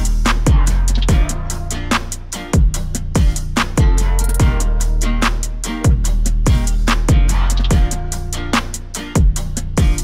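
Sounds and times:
kick drum: 0:00.0 - 0:01.5, 0:02.6 - 0:04.8, 0:05.8 - 0:08.1, 0:09.2 - 0:10.0
bass line: 0:00.0 - 0:10.0.

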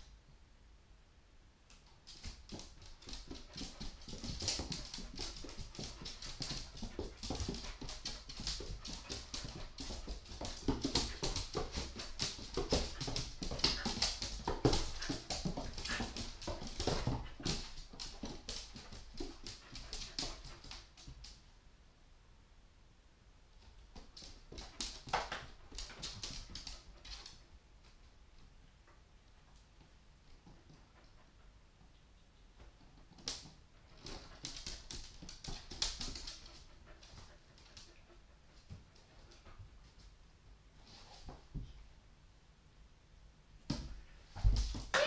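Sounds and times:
dog claws clicking on hard floor: 0:02.1 - 0:21.4, 0:33.0 - 0:38.0.

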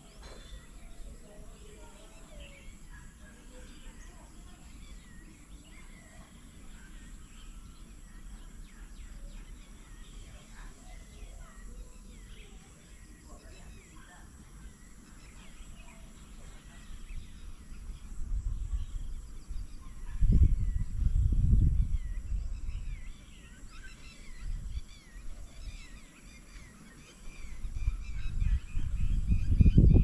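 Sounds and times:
birds chirping: 0:00.0 - 0:30.0
low rumbling wind gusts: 0:16.8 - 0:25.8, 0:27.4 - 0:30.0.

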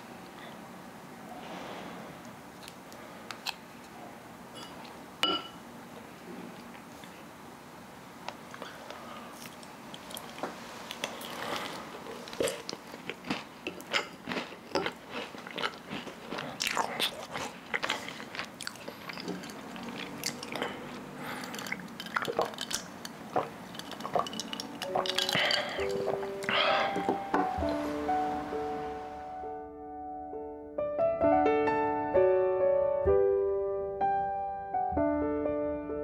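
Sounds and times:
crisp biting and chewing: 0:09.4 - 0:27.0
music: 0:24.8 - 0:36.0.

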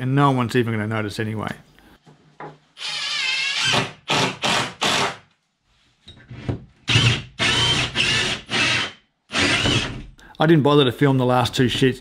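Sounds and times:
cordless drill driving screw: 0:02.8 - 0:05.2, 0:06.9 - 0:10.0
drill boring through plywood: 0:02.8 - 0:05.2, 0:06.9 - 0:10.0.

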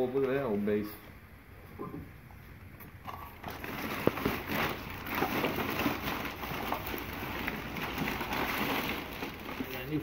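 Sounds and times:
plastic bag rustling: 0:03.4 - 0:10.0.

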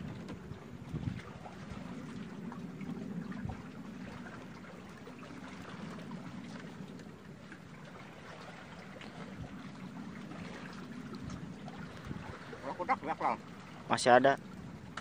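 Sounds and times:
seawater lapping around boat: 0:00.0 - 0:15.0.

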